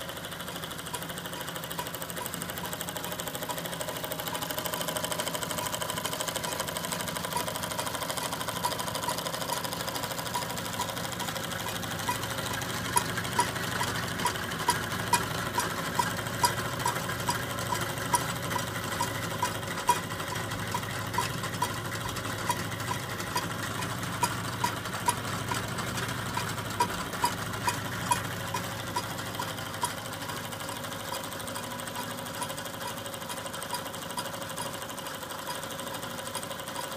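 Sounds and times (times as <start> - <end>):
sharp mechanical clicks: 0.0 - 36.9
toy steam engine whirring: 0.0 - 36.9
light regular ticking: 0.2 - 36.9.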